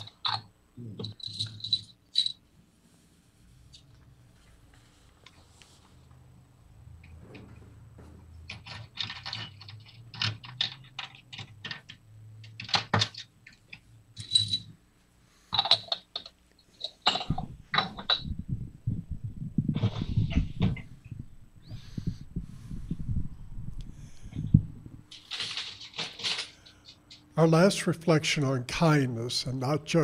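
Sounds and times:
clicks and rattles: 8.4s - 14.7s, 15.5s - 18.3s, 25.1s - 27.2s
dull low rumble: 18.2s - 25.1s.

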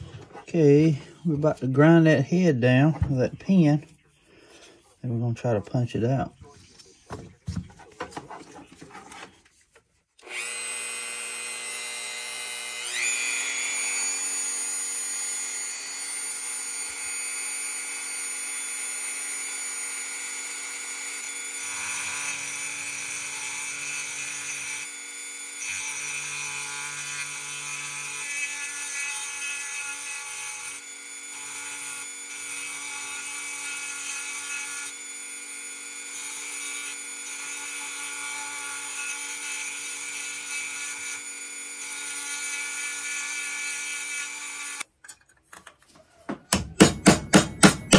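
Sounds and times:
rotary tool grinding metal pin: 10.2s - 44.9s.

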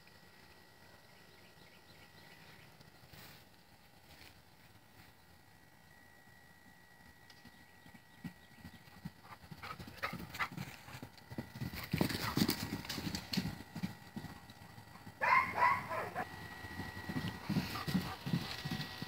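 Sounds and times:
horse hoofbeats on grass: 7.0s - 19.0s.

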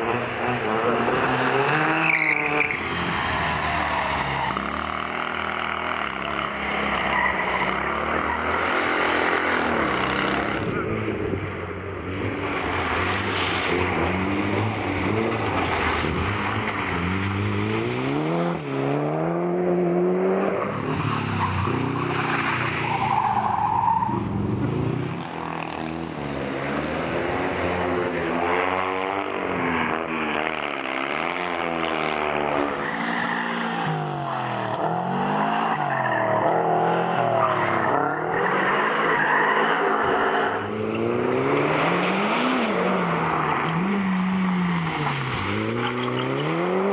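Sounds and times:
tyre noise on wet tarmac: 0.0s - 46.9s
car engine revving: 12.0s - 46.9s.

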